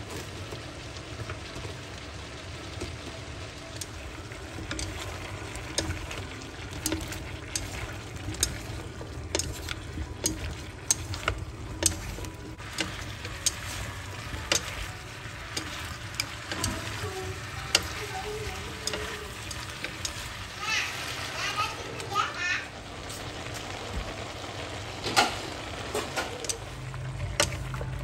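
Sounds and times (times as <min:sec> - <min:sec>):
food sizzling in a pan: 0:00.0 - 0:28.0.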